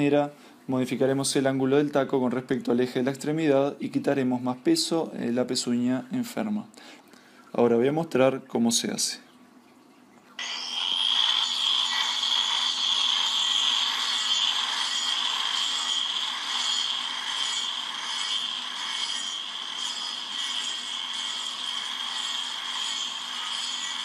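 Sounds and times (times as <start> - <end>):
angle grinder grinding wood: 10.4 - 24.0.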